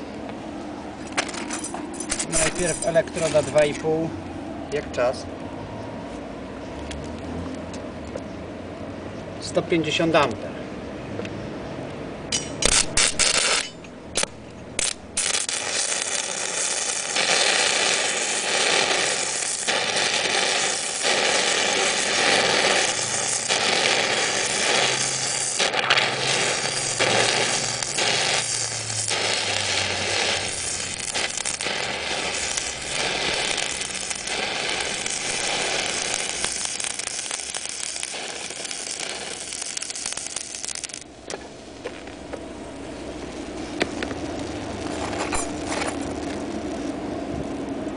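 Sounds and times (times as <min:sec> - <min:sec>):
welding arc crackling: 0:01.1 - 0:03.8, 0:12.4 - 0:47.9.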